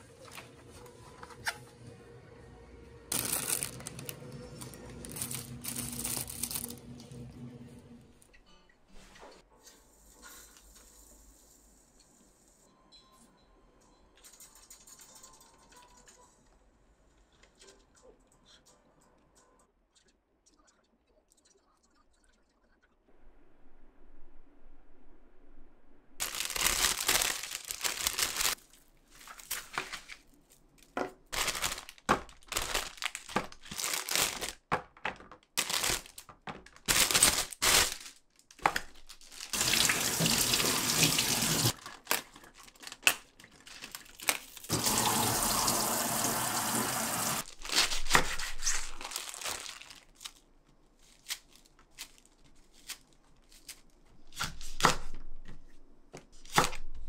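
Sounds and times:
tap water running over vegetables: 39.5s - 41.8s, 44.7s - 47.4s.

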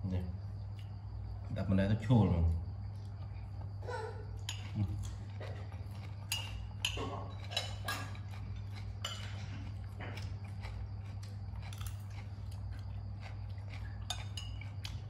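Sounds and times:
steady low hum: 0.0s - 15.0s
spoon clinking on ceramic plates: 6.3s - 8.4s, 9.0s - 9.4s, 14.0s - 15.0s.

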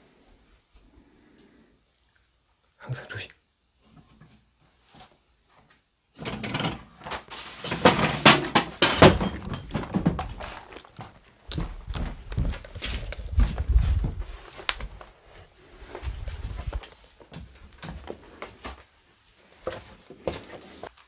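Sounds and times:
heavy footsteps on debris: 7.8s - 18.9s.

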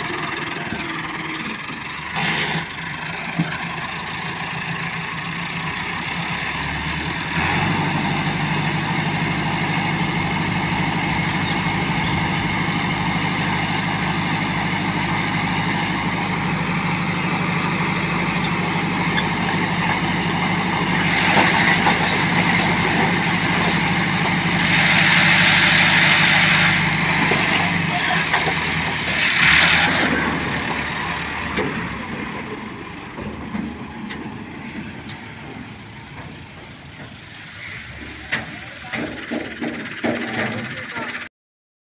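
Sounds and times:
tractor diesel engine running: 0.0s - 41.3s
hydraulic rushing bursts: 15.6s - 31.6s.

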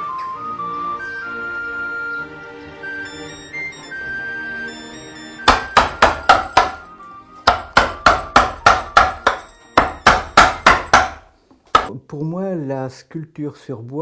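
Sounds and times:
soft background music: 0.0s - 10.6s
mallet striking gouge into wood: 5.4s - 11.9s.

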